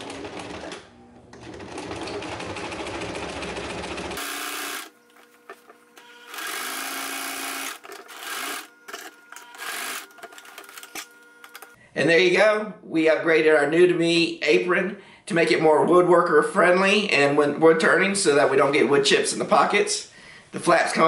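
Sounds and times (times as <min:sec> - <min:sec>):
sewing machine stitching: 0:00.0 - 0:04.9, 0:06.0 - 0:11.1.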